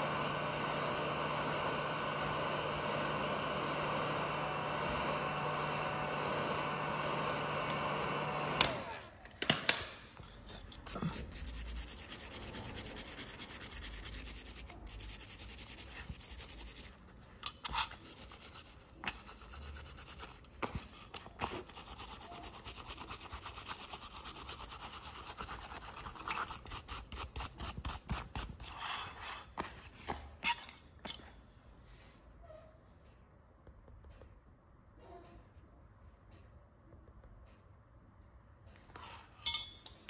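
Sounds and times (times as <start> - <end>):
rubbing on small hard object: 10.8 - 29.5.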